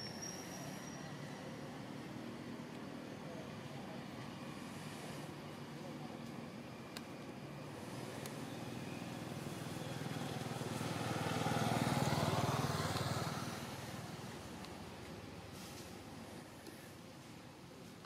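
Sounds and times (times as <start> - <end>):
motor vehicle driving past: 8.6 - 14.6.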